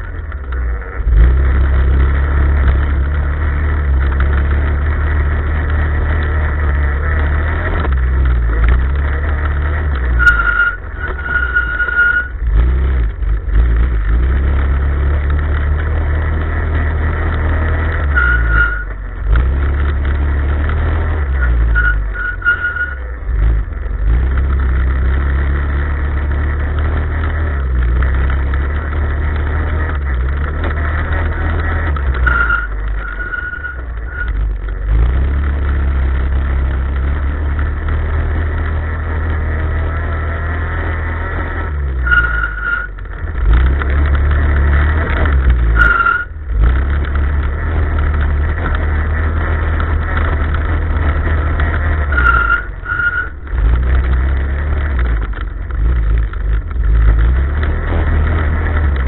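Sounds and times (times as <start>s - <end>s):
off-road vehicle engine under load: 0.0s - 59.0s
thin whine: 6.4s - 12.5s, 17.6s - 19.1s, 21.2s - 24.0s, 30.4s - 34.8s, 41.9s - 43.2s, 45.0s - 55.8s.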